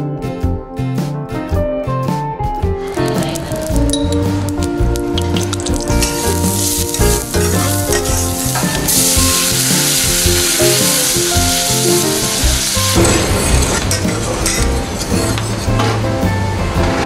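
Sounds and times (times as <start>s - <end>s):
background music with steady beat: 0.0s - 17.0s
rice sizzling in a pan: 5.4s - 13.0s.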